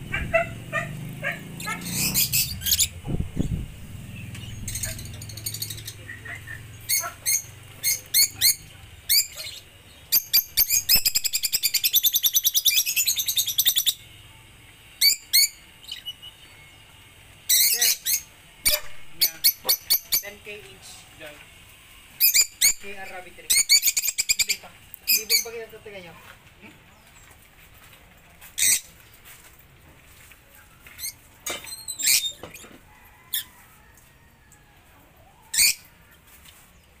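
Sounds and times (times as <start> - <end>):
lovebirds chirping: 0.0 - 14.2, 22.0 - 26.0.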